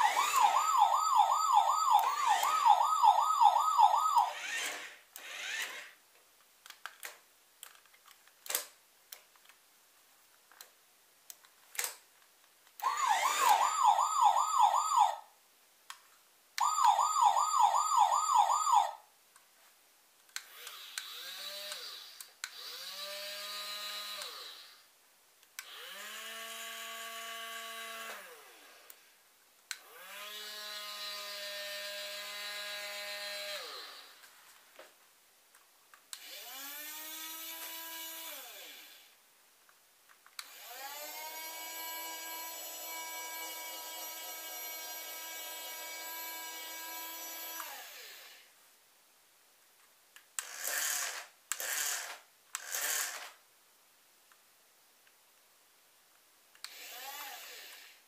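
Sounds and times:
toy siren wailing: 0:00.0 - 0:05.8, 0:12.8 - 0:15.2, 0:16.6 - 0:19.0
small electric motor whirring: 0:00.0 - 0:06.0, 0:12.8 - 0:15.1, 0:20.4 - 0:24.8, 0:25.6 - 0:29.1, 0:29.8 - 0:34.3, 0:36.2 - 0:39.2, 0:40.4 - 0:48.5, 0:50.4 - 0:53.4, 0:56.6 - 0:58.0
plastic clicks: 0:06.6 - 0:09.6, 0:10.5 - 0:12.8.

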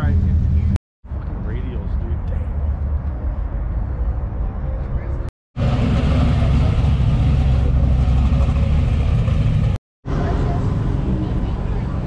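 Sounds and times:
car engine running: 0:05.6 - 0:09.8
faint voices: 0:10.1 - 0:12.0.

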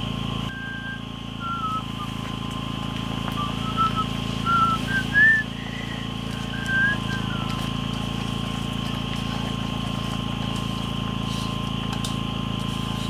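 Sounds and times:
steady low hum: 0:00.0 - 0:13.0
whistled notes: 0:00.5 - 0:07.9.

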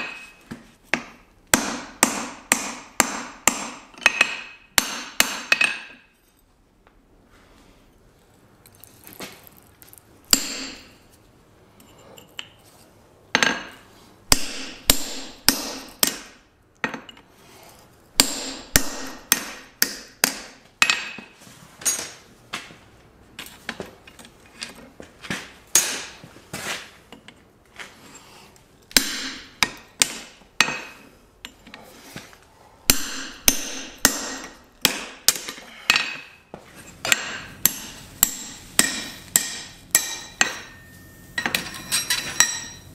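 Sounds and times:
hammer striking hot steel on anvil: 0:00.0 - 0:06.0, 0:10.3 - 0:11.0, 0:13.4 - 0:17.2, 0:18.2 - 0:21.2, 0:25.7 - 0:26.2, 0:28.9 - 0:31.6, 0:32.9 - 0:36.4, 0:37.0 - 0:42.9.

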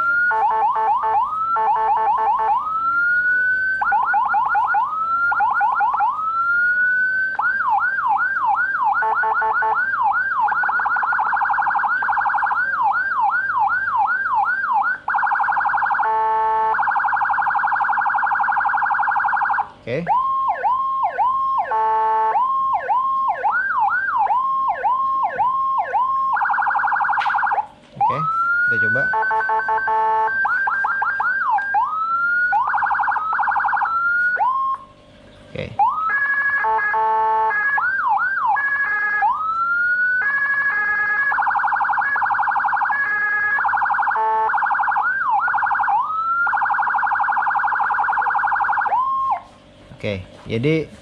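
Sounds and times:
electronic siren wailing and yelping: 0:00.0 - 0:35.0, 0:35.6 - 0:49.5
buzzy horn blasts: 0:21.7 - 0:22.4, 0:28.9 - 0:30.4, 0:36.6 - 0:37.7.

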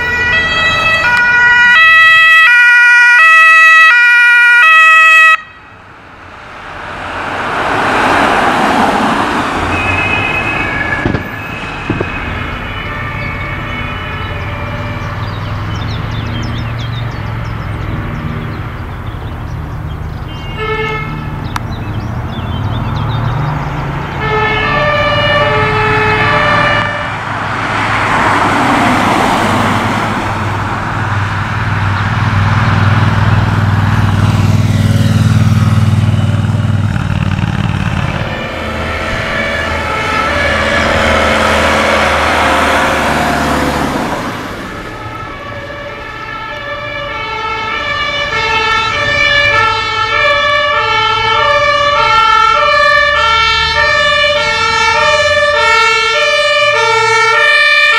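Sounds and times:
fire truck two-tone siren: 0:00.0 - 0:06.8, 0:07.6 - 0:16.4, 0:20.4 - 0:21.2, 0:24.0 - 0:30.3, 0:37.9 - 0:57.9
two-tone police siren: 0:00.0 - 0:06.8, 0:07.7 - 0:18.6, 0:24.0 - 0:30.1, 0:37.9 - 0:57.9
vehicles driving past: 0:00.0 - 0:57.9.

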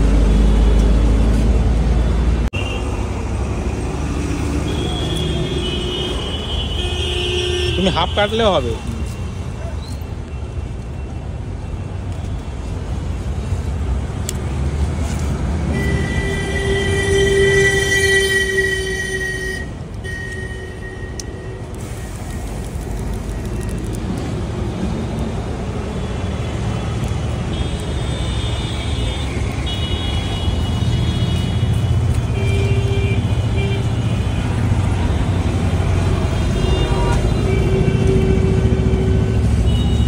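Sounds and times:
road traffic: 0:00.0 - 0:40.0
long horn blast: 0:15.7 - 0:20.7.

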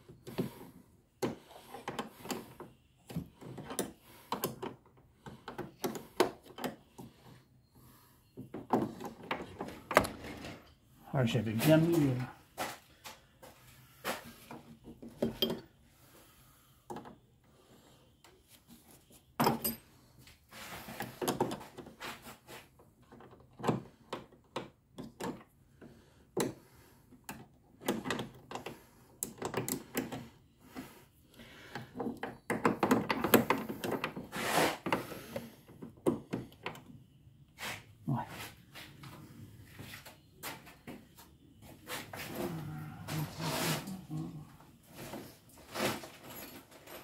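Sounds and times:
metal tools clinking: 0:45.6 - 0:47.0.

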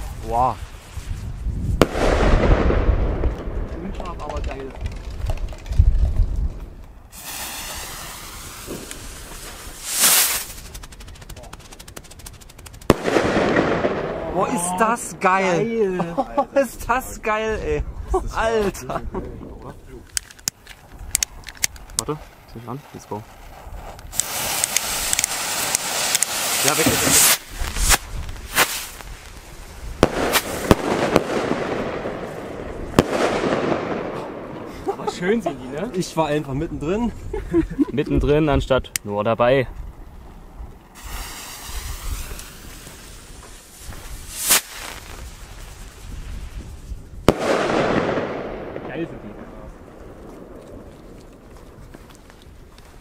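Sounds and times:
rocket whoosh: 0:00.0 - 0:04.2, 0:06.5 - 0:15.6, 0:24.1 - 0:34.9, 0:40.9 - 0:51.2
sharp firework bangs: 0:01.8 - 0:04.4, 0:07.1 - 0:15.5, 0:24.1 - 0:29.2, 0:29.8 - 0:34.8, 0:41.0 - 0:45.9, 0:47.2 - 0:51.2
rocket hissing: 0:07.1 - 0:15.3, 0:24.0 - 0:34.9, 0:40.9 - 0:49.9.

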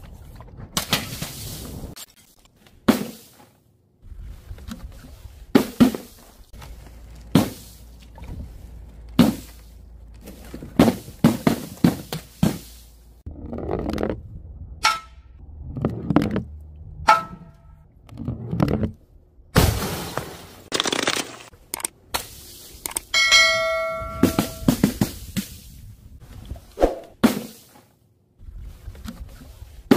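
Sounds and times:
water balloons bursting: 0:07.2 - 0:08.3, 0:09.2 - 0:13.0, 0:19.6 - 0:21.2.

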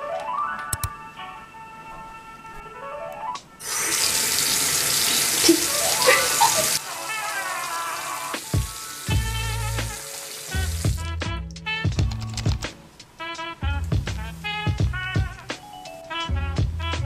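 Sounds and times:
sink tap running: 0:03.6 - 0:11.0.

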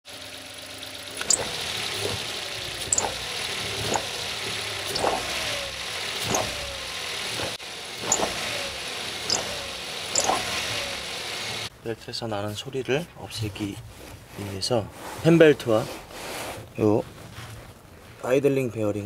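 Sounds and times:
car engine idling: 0:00.1 - 0:11.7
belt chirping squeak: 0:01.2 - 0:02.2, 0:02.8 - 0:04.2, 0:04.9 - 0:05.3, 0:06.3 - 0:06.6, 0:08.0 - 0:08.4, 0:09.3 - 0:10.9.

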